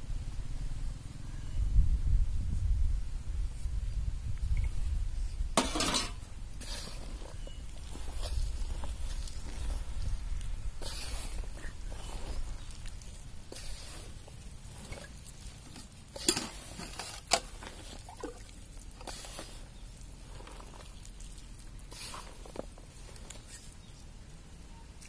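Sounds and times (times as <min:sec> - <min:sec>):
hand squelching food in coating: 0:06.4 - 0:25.0.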